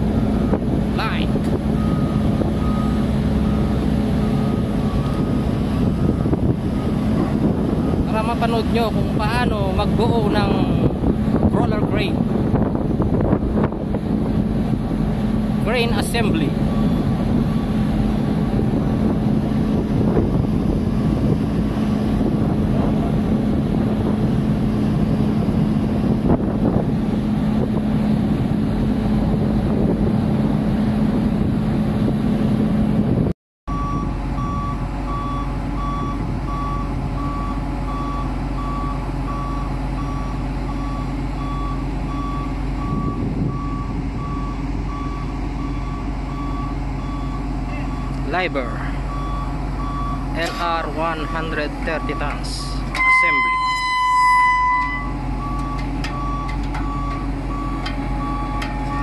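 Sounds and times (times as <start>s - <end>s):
diesel machinery humming: 0.0s - 59.0s
reversing alarm beeping: 0.2s - 10.9s, 15.7s - 17.7s, 33.7s - 48.2s, 48.9s - 59.0s.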